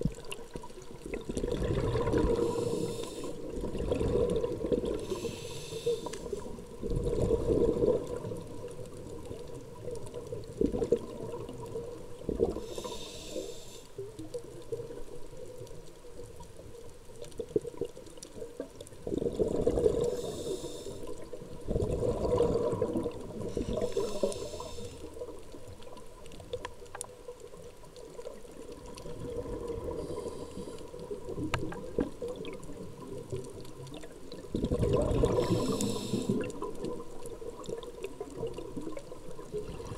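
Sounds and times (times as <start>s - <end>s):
regulator breathing underwater: 1.8s - 7.8s, 12.4s - 14.1s, 19.7s - 21.3s, 22.1s - 25.3s, 29.8s - 31.3s, 35.1s - 36.7s
faint steady tone: 12.5s - 14.6s.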